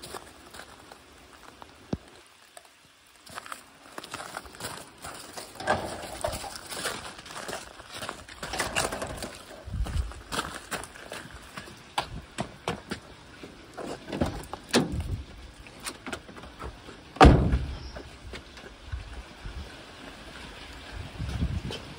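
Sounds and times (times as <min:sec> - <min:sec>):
footsteps crunching on gravel: 0:00.0 - 0:15.3
low muffled thud: 0:17.2 - 0:17.8.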